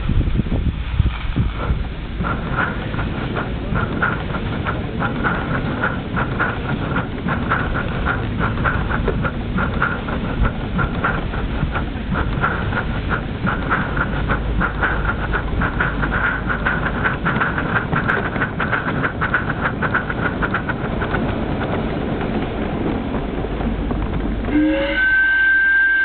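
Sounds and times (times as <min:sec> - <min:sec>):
wheels rumbling on track: 0:00.0 - 0:26.0
steam locomotive chuffing: 0:00.5 - 0:26.0
steam whistle blowing: 0:24.5 - 0:26.0.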